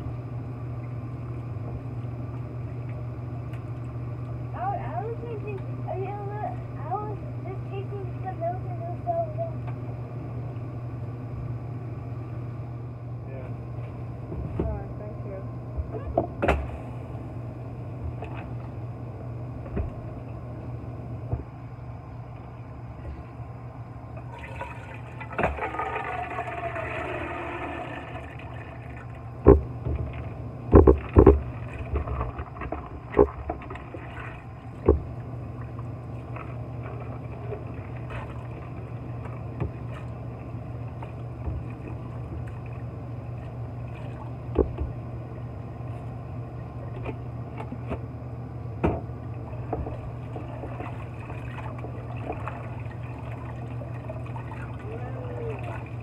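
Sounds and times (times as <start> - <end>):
water sloshing in plastic container: 24.2 - 45.0, 49.3 - 56.0
tap water running into pot: 24.3 - 29.0.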